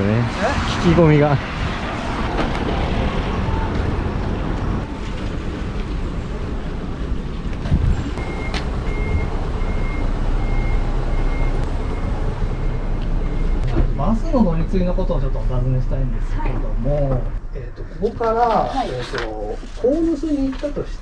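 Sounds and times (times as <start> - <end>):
engine rumble: 0.0 - 20.5
wind: 0.0 - 21.0
reversing alarm beeping: 8.2 - 13.7.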